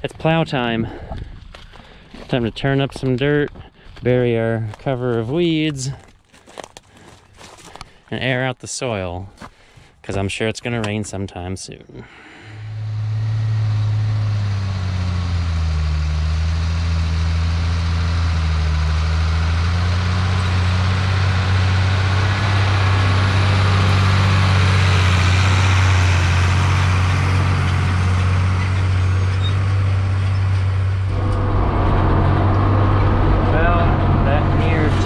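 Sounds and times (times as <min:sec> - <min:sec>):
tractor diesel engine under load: 0:12.0 - 0:35.0
engine heard from inside cab: 0:12.1 - 0:35.0.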